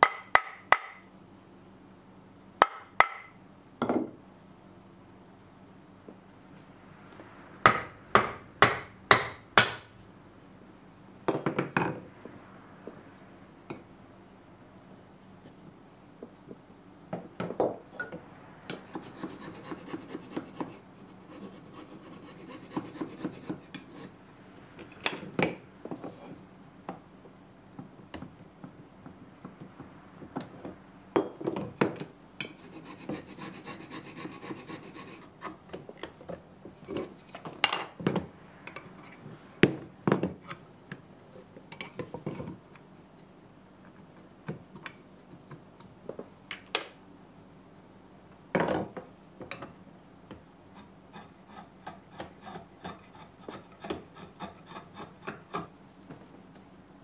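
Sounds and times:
sharp knocks: 0:07.6 - 0:09.9
hand tool rasping wood: 0:19.0 - 0:24.1, 0:32.5 - 0:35.6, 0:50.7 - 0:55.7.

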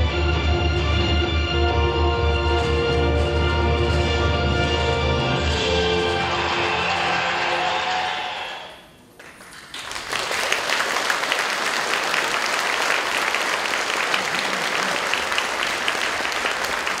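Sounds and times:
stage music: 0:00.0 - 0:09.6
audience applause: 0:05.6 - 0:17.0.

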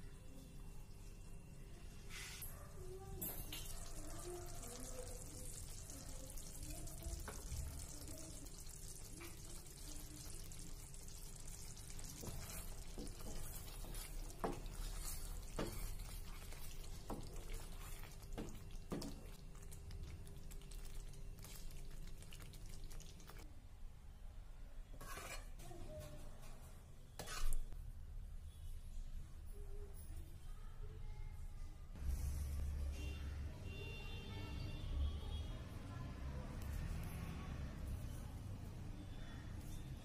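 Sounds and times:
curry bubbling in a pan: 0:03.5 - 0:23.5.

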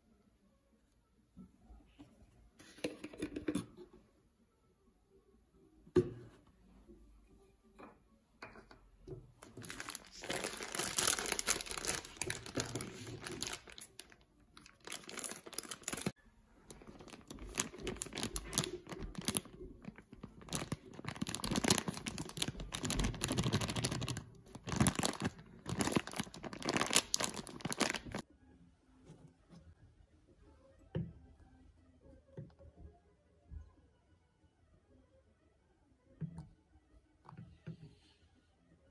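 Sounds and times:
plastic bag crinkling: 0:09.4 - 0:28.2.

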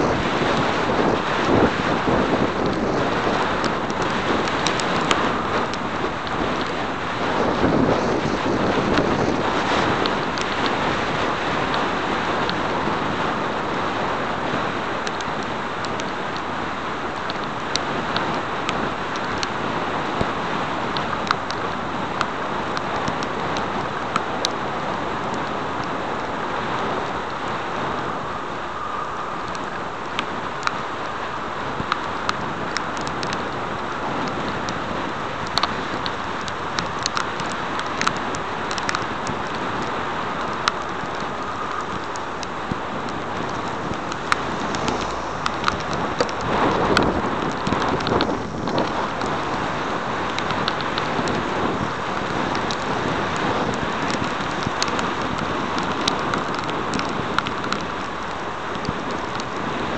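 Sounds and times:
bicycle tyre noise on wet asphalt: 0:00.0 - 0:59.9
rushing wind: 0:00.0 - 0:59.9
light ticks: 0:00.1 - 0:06.8, 0:07.5 - 0:13.8, 0:15.0 - 0:16.5, 0:17.2 - 0:26.3, 0:31.8 - 0:59.9
wind rushing: 0:27.0 - 0:32.6, 0:40.4 - 0:54.4
sharp ticks: 0:35.4 - 0:49.4.

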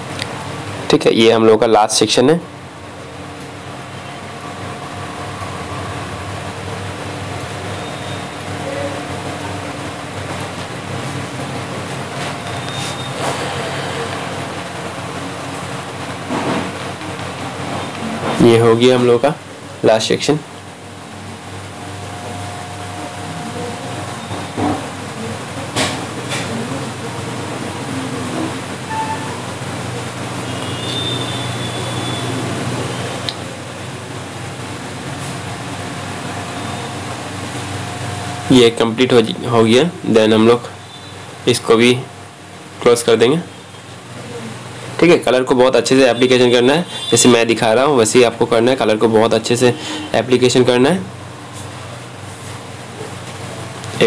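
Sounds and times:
steady machine hum: 0:00.0 - 0:54.0
faint high tone: 0:28.9 - 0:29.6.

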